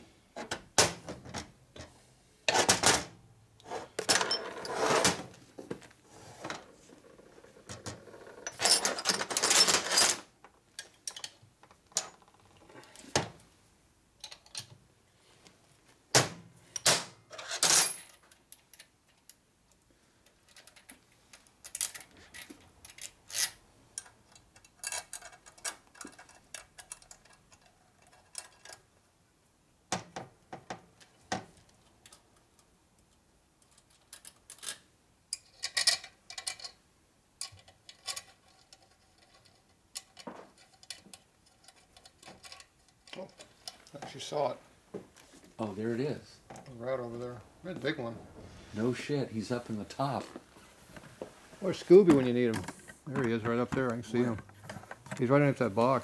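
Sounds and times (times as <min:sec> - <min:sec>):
metal tools clinking on a workbench: 0:04.0 - 0:05.1, 0:08.4 - 0:12.3.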